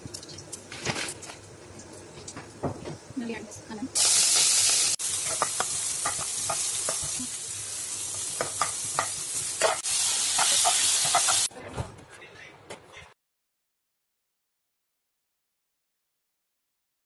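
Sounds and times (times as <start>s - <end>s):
food sizzling in a pan: 4.0s - 11.5s.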